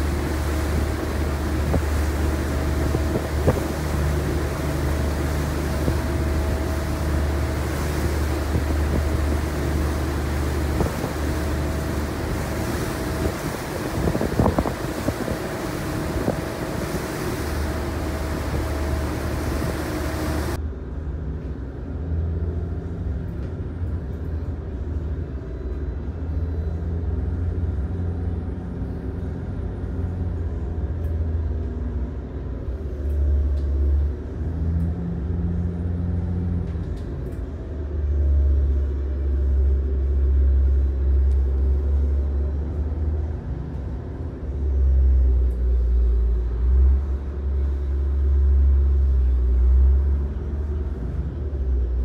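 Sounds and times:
rush of wind and wash: 0.0s - 20.7s
boat engines low rumble: 0.0s - 52.0s.

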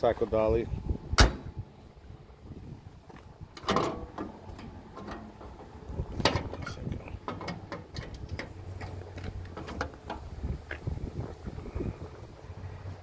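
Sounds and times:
metal latch clicking: 3.6s - 8.6s.

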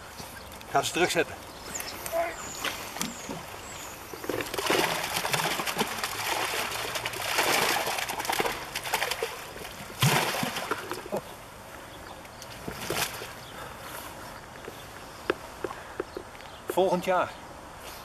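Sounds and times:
water splashing and sloshing: 2.0s - 13.5s
fish splashing at surface: 4.1s - 11.2s.

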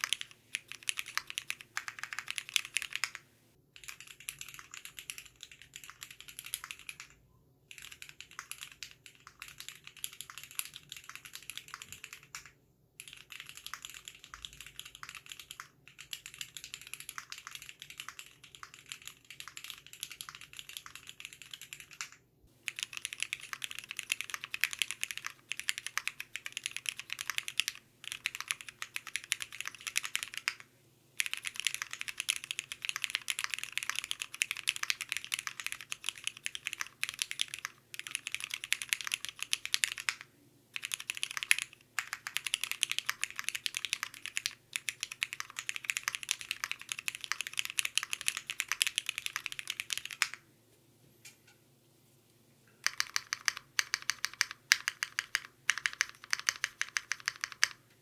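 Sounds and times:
mechanical keyboard key clacks: 52.8s - 57.8s.

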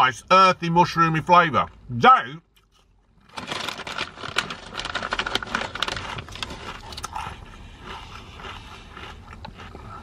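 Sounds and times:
crisp crunching while chewed: 2.6s - 10.0s.

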